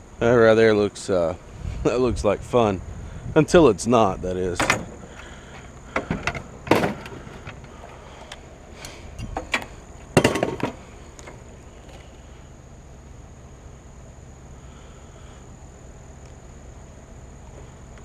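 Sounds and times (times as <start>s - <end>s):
scooter clattering against wood: 4.6s - 12.1s.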